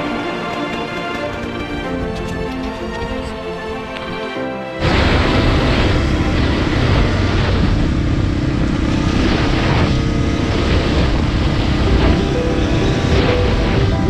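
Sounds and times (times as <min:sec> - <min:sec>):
wind rush on microphone: 0:04.8 - 0:14.0
dirt bike engines running: 0:04.9 - 0:14.0.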